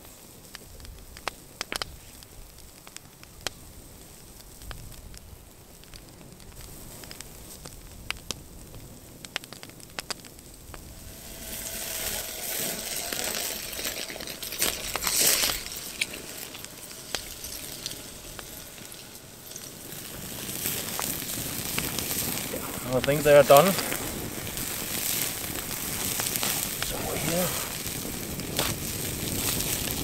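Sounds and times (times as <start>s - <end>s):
wood fire crackling: 0.0s - 30.0s
burger patties sizzling: 6.6s - 30.0s
sharp pops: 9.3s - 30.0s.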